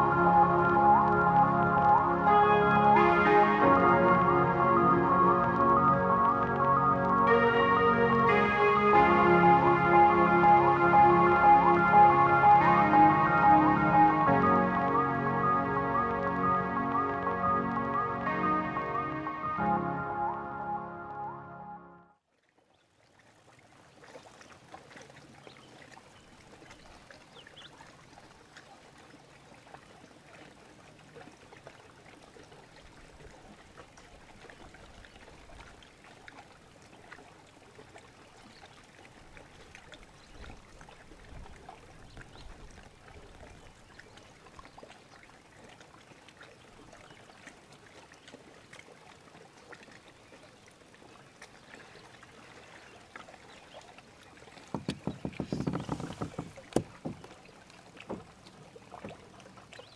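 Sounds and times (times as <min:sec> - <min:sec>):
small splashy ticks: 0:22.3 - 0:59.9
water lapping against hull: 0:22.4 - 0:59.9.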